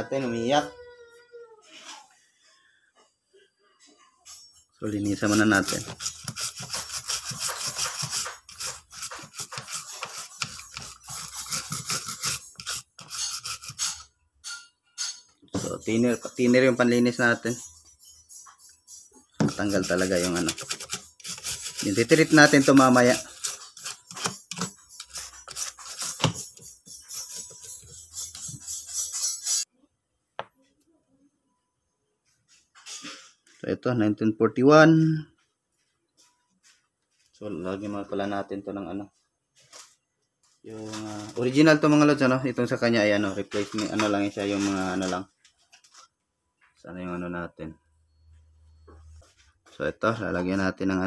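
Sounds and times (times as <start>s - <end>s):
brush scrubbing circuit board: 4.8s - 14.0s, 19.4s - 29.7s.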